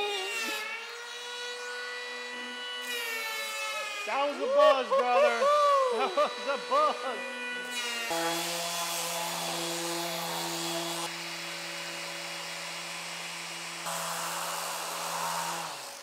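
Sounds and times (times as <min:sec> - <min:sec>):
electric power tool whirring: 0:00.0 - 0:16.0.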